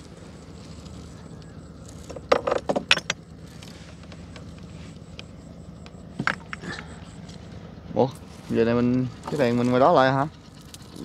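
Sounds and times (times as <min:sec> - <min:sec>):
boat motor humming: 0:00.0 - 0:11.0
sharp knocks and clatter: 0:02.0 - 0:03.2.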